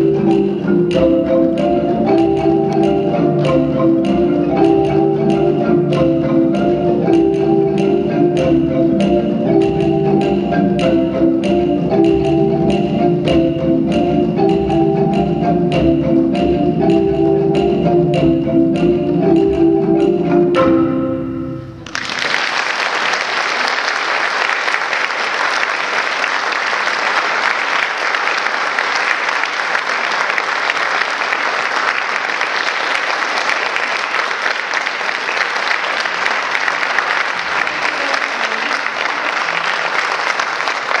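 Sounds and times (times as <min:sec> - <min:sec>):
marimba chord ringing: 0:00.0 - 0:21.9
audience applause: 0:21.8 - 0:41.0.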